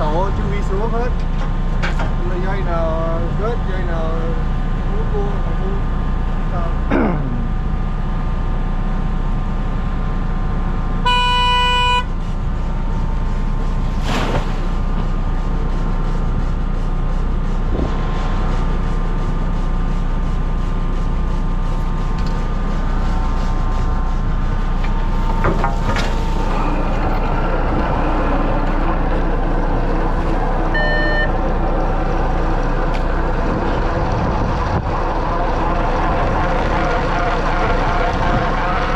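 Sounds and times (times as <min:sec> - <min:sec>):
boat engine running: 0:00.0 - 0:38.9
boat horn: 0:11.0 - 0:12.2, 0:30.7 - 0:31.4, 0:35.2 - 0:38.9.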